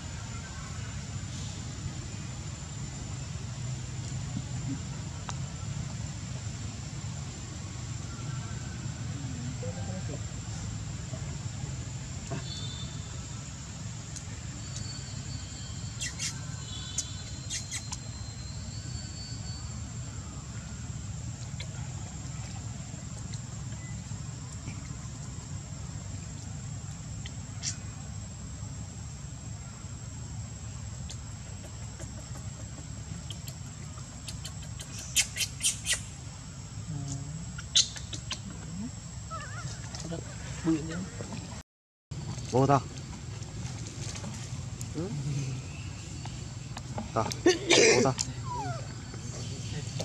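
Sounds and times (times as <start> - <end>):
low background hum: 0.0 - 41.6
baby monkey squeaking: 16.0 - 16.4, 17.0 - 18.2, 34.3 - 36.1, 37.6 - 38.5.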